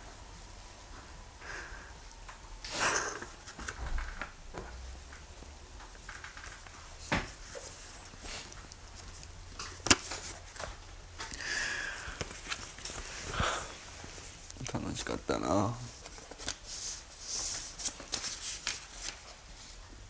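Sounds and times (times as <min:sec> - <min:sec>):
paper card rustling: 0:12.2 - 0:13.4, 0:15.9 - 0:19.4.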